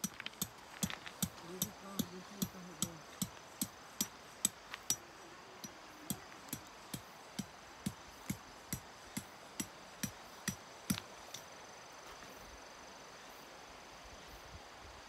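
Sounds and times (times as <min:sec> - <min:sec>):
hammer striking tent stakes: 0:00.0 - 0:05.0, 0:06.5 - 0:11.4.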